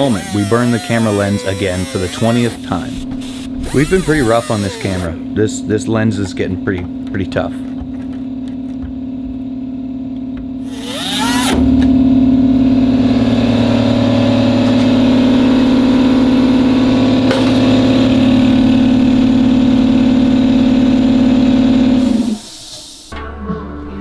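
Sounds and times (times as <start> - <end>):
grinder cutting sheet steel: 0.0 - 5.1, 10.7 - 11.6.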